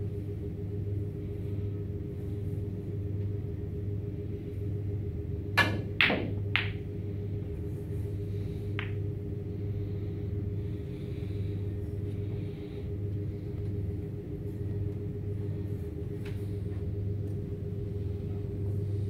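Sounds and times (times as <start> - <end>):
steady low hum: 0.0 - 19.0
cue striking ball: 5.6 - 6.9, 8.7 - 9.1
snooker balls clicking: 5.6 - 7.0, 8.7 - 9.2.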